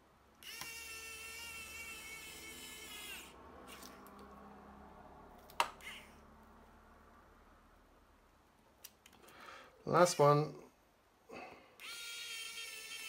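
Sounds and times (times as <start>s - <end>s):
electric screwdriver whirring: 0.4s - 3.9s, 11.8s - 13.0s.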